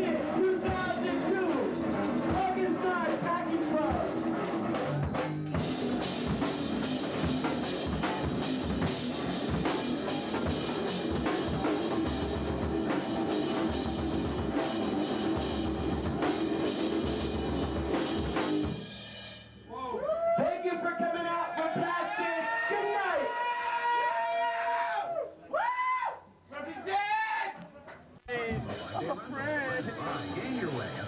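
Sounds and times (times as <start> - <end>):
distorted electric guitar: 0.0 - 18.9, 28.3 - 31.0
drum kit with cymbals: 0.0 - 19.9, 28.4 - 31.0.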